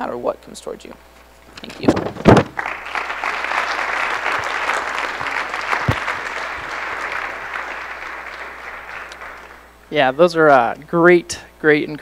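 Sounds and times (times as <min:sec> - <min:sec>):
audience applauding: 0:02.4 - 0:09.7.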